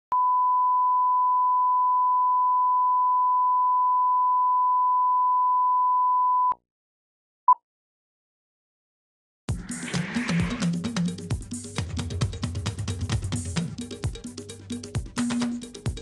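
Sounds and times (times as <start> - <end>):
short beep: 0.1 - 6.6.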